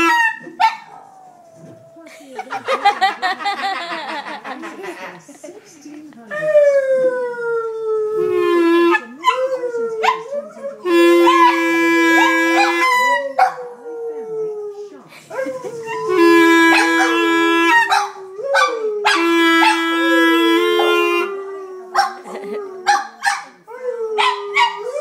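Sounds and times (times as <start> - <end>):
clarinet notes: 0.0 - 0.4, 7.9 - 13.4, 15.4 - 22.4
dog howling: 20.8 - 25.0.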